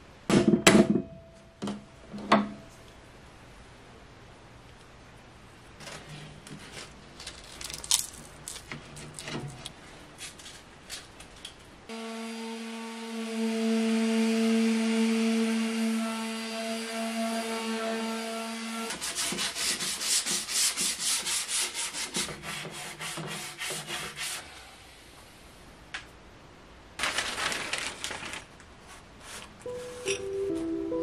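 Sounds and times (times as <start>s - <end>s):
electric palm sander on wood: 11.9s - 21.6s
hand sanding with sandpaper: 18.8s - 24.6s.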